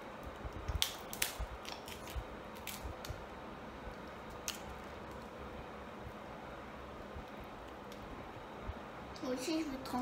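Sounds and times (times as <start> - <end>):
crab shells cracking: 0.6 - 3.2, 3.9 - 5.4.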